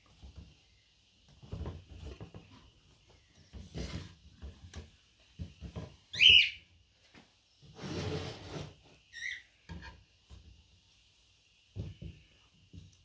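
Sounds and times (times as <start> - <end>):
scraping shuffling noise: 7.7 - 8.9.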